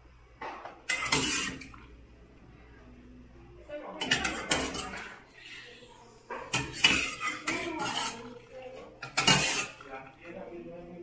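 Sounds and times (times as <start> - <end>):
metal spoon clanking on pot: 0.9 - 1.9, 4.0 - 5.2, 6.4 - 10.0.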